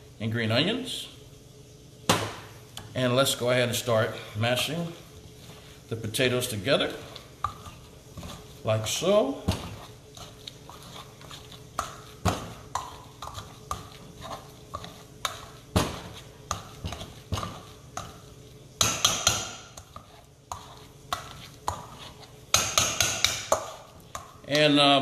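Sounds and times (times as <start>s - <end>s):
utensil knocking against bowl: 18.8s - 19.8s, 22.5s - 24.3s.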